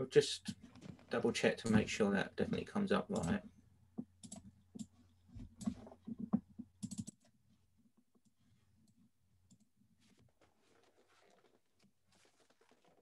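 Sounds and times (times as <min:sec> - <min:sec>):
faint keyboard and mouse clicks: 0:03.0 - 0:07.3.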